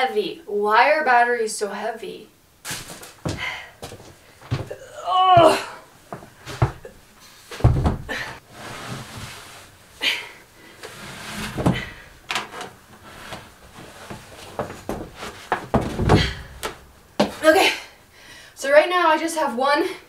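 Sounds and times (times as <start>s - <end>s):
heavy battery thumping on wood floor: 7.6s - 8.2s, 14.6s - 17.4s.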